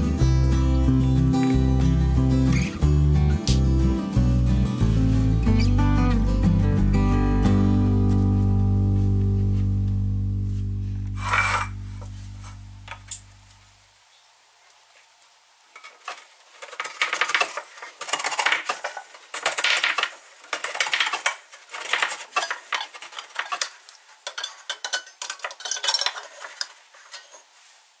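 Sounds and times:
can opener scraping through tin: 11.2 - 12.6, 15.8 - 27.5.

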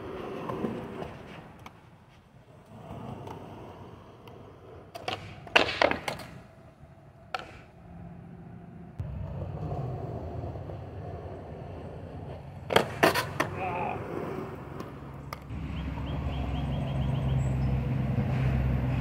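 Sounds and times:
skateboard wheels rolling on concrete: 0.0 - 19.0
skateboard clacking on concrete: 4.1 - 6.6, 7.3 - 7.8, 12.2 - 15.5
skateboard knock: 4.9 - 6.4, 7.3 - 7.7.

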